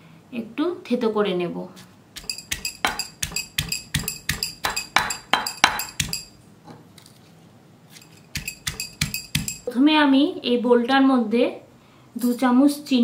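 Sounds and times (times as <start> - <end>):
pestle pounding in stone mortar: 2.2 - 6.3, 8.3 - 9.7.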